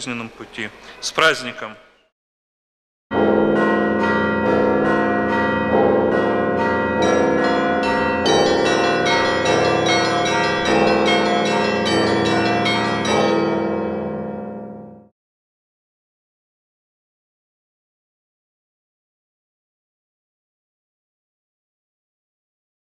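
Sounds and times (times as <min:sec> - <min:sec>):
deep bell strokes: 0:03.1 - 0:15.1
higher bells ringing: 0:03.1 - 0:15.1.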